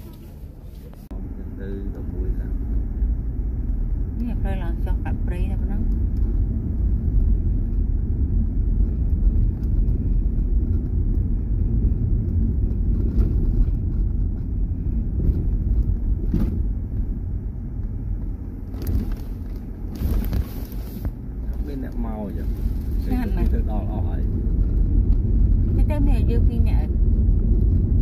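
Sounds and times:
car engine and tyres rumbling: 0:00.0 - 0:28.0
car knocking over bumps: 0:05.7 - 0:22.1.

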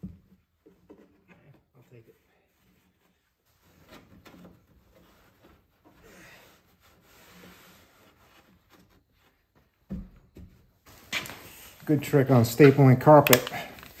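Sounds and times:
hand rubbing carpet: 0:04.9 - 0:09.8.

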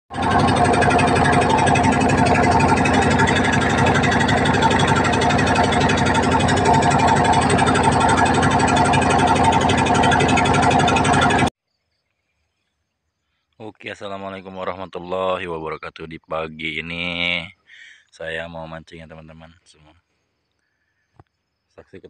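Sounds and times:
boat engine chugging: 0:00.1 - 0:11.5.

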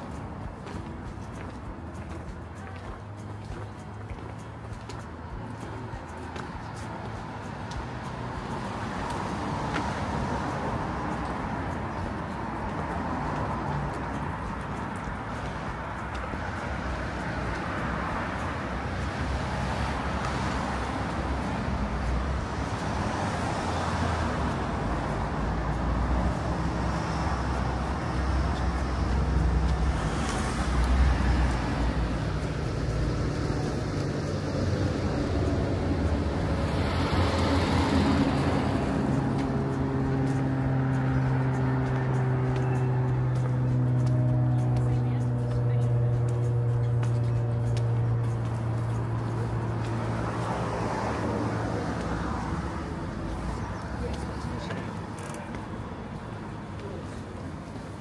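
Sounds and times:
cars passing: 0:00.0 - 0:58.0
aircraft drone overhead: 0:27.4 - 0:53.4.

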